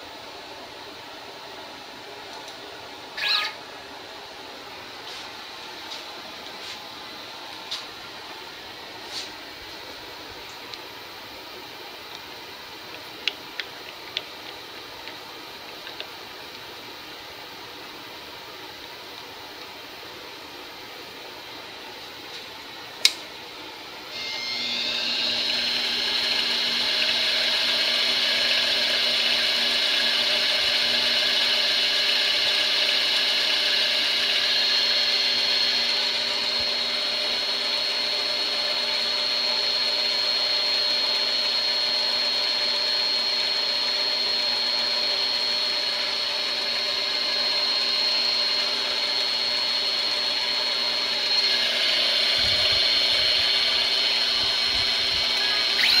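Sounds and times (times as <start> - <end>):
sharp click: 23.0 - 23.3
lathe motor whining: 24.1 - 56.0.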